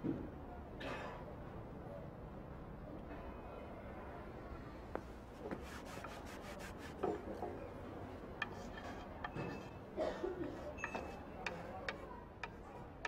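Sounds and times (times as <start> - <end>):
chalkboard being wiped: 5.4 - 7.2
chalk writing on board: 5.5 - 7.3.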